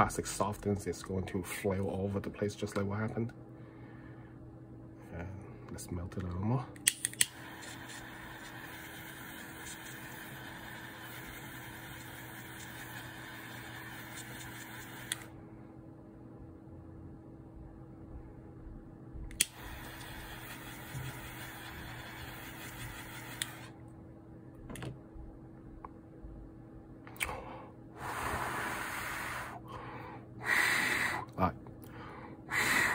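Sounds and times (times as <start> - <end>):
lighter ignition click: 6.8 - 7.5, 19.3 - 20.2
jet lighter flame hissing: 7.1 - 15.3, 19.3 - 23.7.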